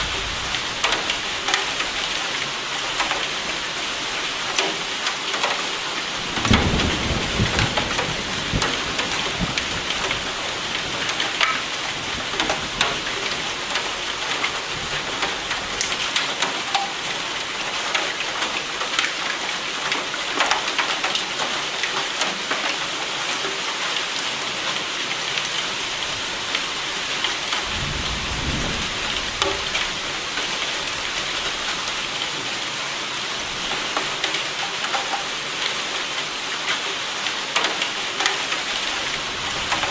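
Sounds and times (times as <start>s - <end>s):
heavy rain hissing: 0.0s - 16.6s
low thunder rumbles: 6.2s - 10.0s, 27.6s - 30.0s
raindrop hits: 6.3s - 16.9s.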